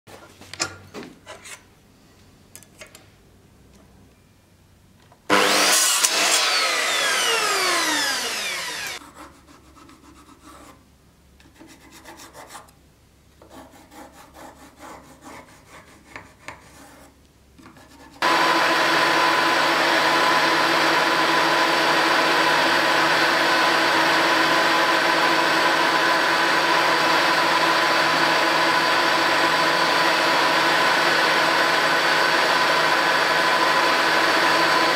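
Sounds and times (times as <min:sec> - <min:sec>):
machine running and winding down: 0:05.3 - 0:09.0
milling machine cutting wood: 0:05.3 - 0:09.0, 0:18.2 - 0:34.9.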